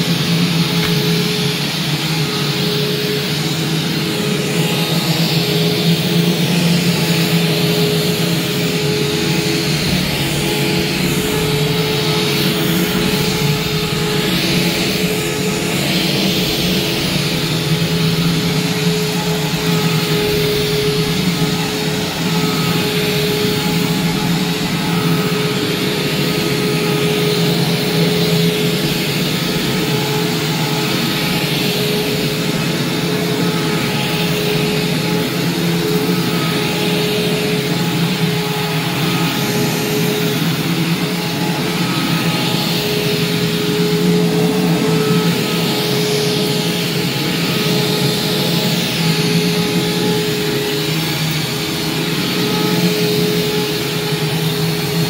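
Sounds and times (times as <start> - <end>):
vacuum cleaner running on carpet: 0.0 - 55.0.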